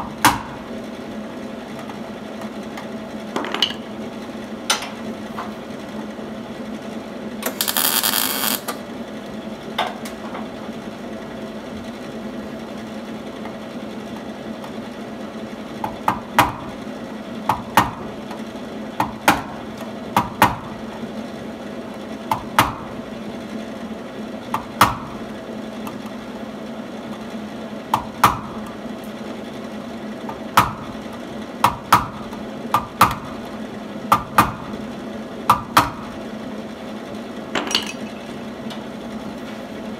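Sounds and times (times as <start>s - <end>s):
loud hiss: 7.4s - 8.8s
steady hum: 7.4s - 9.0s.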